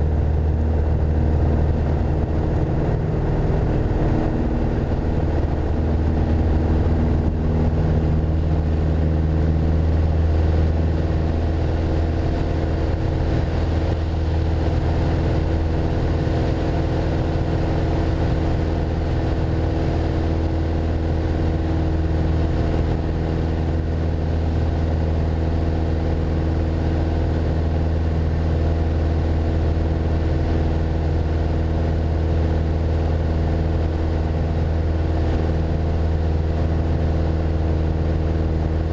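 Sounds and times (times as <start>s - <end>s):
aircraft engine and propeller: 0.0s - 38.9s.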